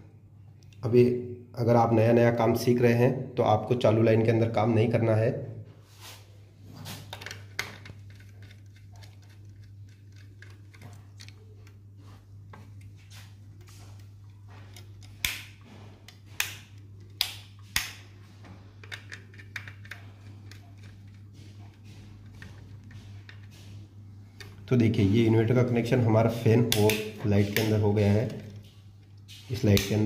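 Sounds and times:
wires pushed into switch terminals: 6.0s - 18.2s.

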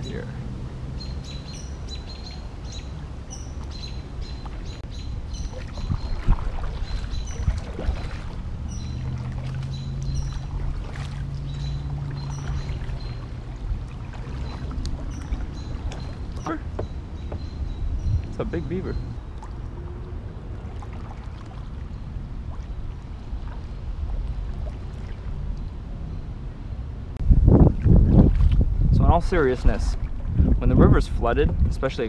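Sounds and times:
bird chirping: 1.0s - 10.6s, 11.4s - 13.3s, 14.4s - 19.9s
paddle splashing in water: 1.5s - 18.3s, 19.0s - 26.0s, 27.6s - 28.7s
sharp splashes or knocks: 5.4s - 17.5s.

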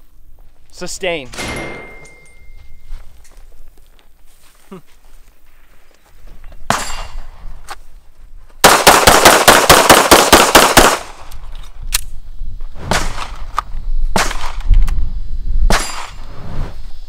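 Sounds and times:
rapid gunfire with echo: 8.6s - 11.1s
gunshots: 8.6s - 11.2s, 12.8s - 13.4s.

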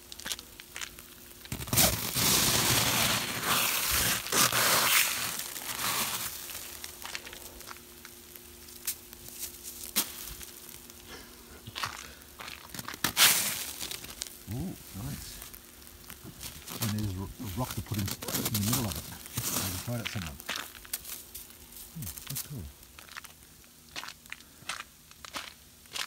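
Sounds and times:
hand scraping snow off car: 1.6s - 6.4s, 13.0s - 13.9s, 16.4s - 20.4s.

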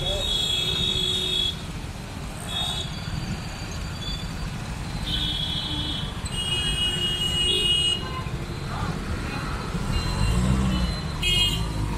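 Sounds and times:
vehicle horns honking: 0.0s - 1.7s, 5.0s - 8.4s, 9.8s - 11.9s
traffic rumble: 0.0s - 11.9s.

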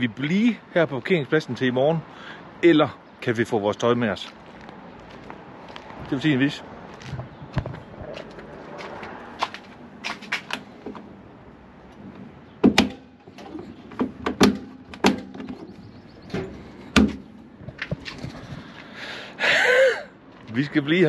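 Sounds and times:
locked door clunking and knocking: 12.6s - 15.7s.

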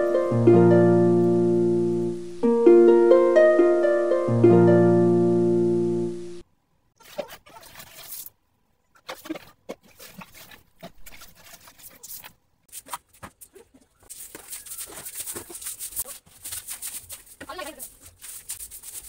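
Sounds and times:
twig broom sweeping concrete: 14.1s - 19.0s.

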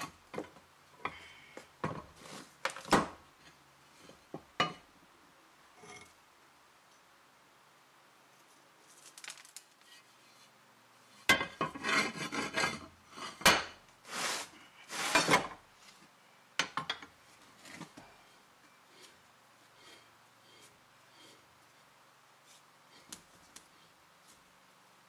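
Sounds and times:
heavy metal parts scraping on wood: 11.6s - 13.4s, 14.1s - 15.5s.

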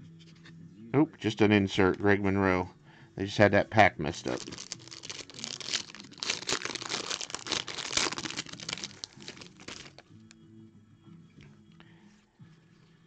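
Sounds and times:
plastic wrapper crinkling and tearing: 4.2s - 10.0s.

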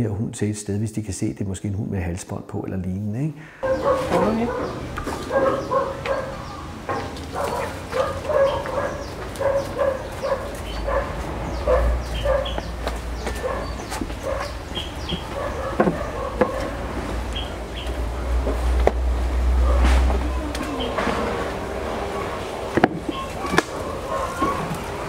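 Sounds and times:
dog barking: 3.6s - 16.8s, 19.6s - 20.0s, 23.2s - 25.0s.

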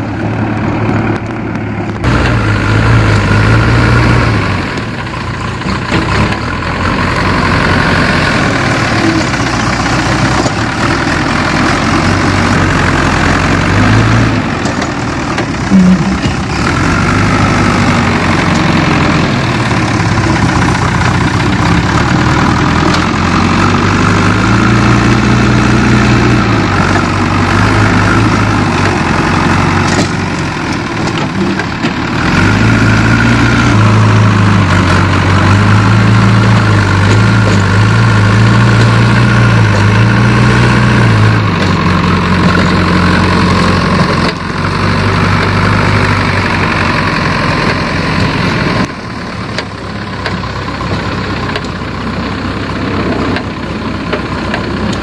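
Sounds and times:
diesel engine under load: 0.0s - 55.0s.

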